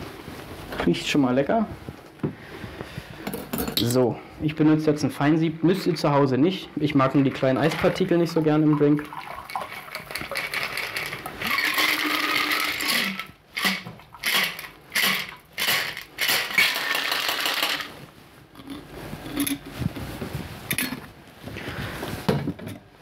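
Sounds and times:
liquid running: 0:05.1 - 0:17.2
ice rattling in metal shaker: 0:09.0 - 0:18.0
cocktail shaker shakes: 0:09.1 - 0:18.0.

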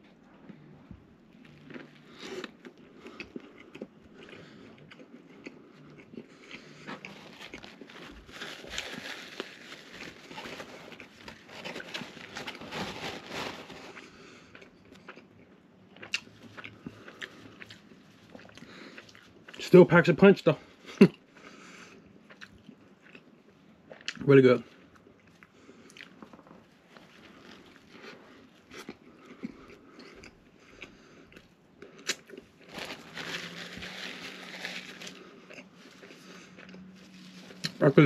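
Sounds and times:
wet chewing: 0:01.4 - 0:12.5, 0:13.8 - 0:19.6, 0:24.9 - 0:37.8.

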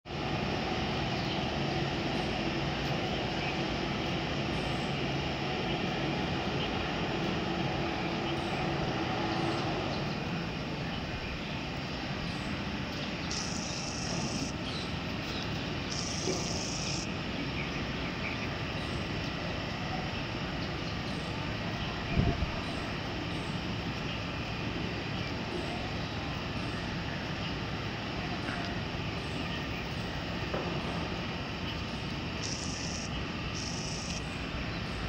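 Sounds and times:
distant engine drone: 0:00.1 - 0:35.0
high hissing buzzes: 0:00.2 - 0:19.2, 0:28.9 - 0:35.0.

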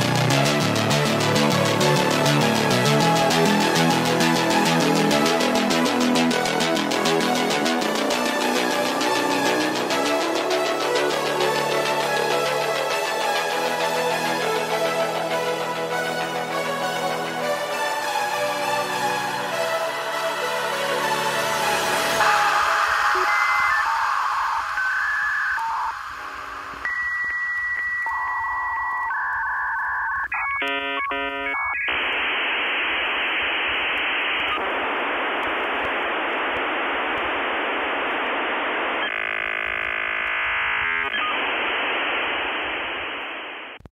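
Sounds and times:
radio static hiss: 0:21.6 - 0:43.9.

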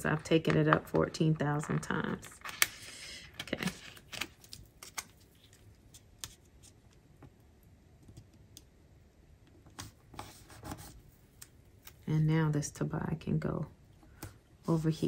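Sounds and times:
paper stickers tapping and rustling: 0:00.0 - 0:02.8.

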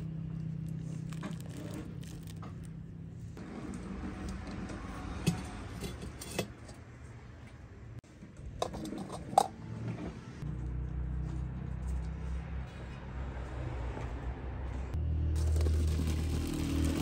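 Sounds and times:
steel cookware clanking: 0:05.2 - 0:06.8.

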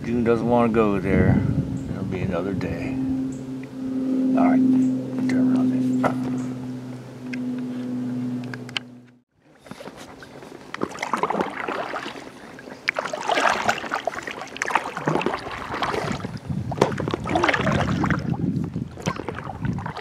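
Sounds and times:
paddle strokes splashing water: 0:09.4 - 0:20.0.

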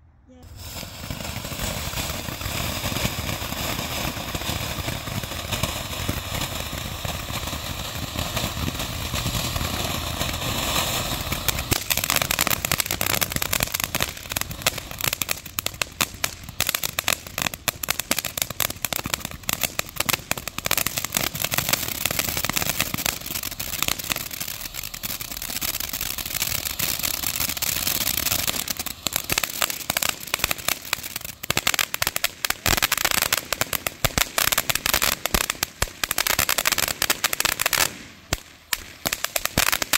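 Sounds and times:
fireworks hissing and crackling: 0:00.3 - 0:39.9.

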